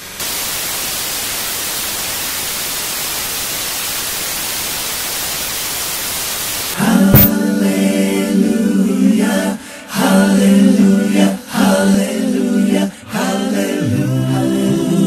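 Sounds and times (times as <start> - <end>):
television static hiss: 0.0 - 7.3
voices singing a held chord: 6.8 - 15.0.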